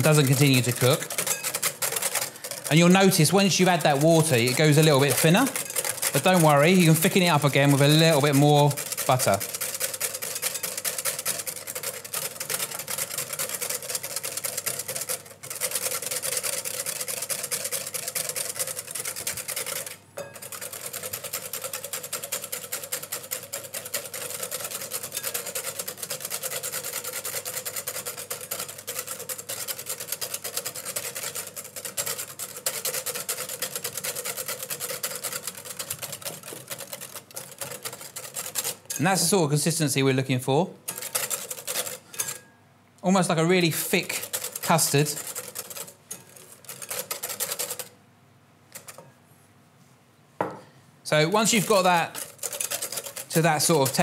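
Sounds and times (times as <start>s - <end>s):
whisk beating in a glass bowl: 0.0s - 40.2s, 40.9s - 42.5s, 43.4s - 47.9s, 51.1s - 54.0s.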